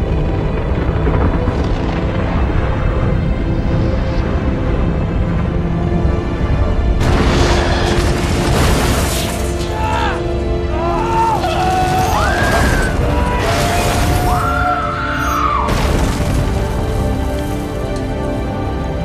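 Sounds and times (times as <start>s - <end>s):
rumbling booms: 0.1s - 9.1s
crashing debris: 7.0s - 9.9s, 11.4s - 14.8s, 15.6s - 18.5s
people shouting and crying: 9.6s - 15.7s.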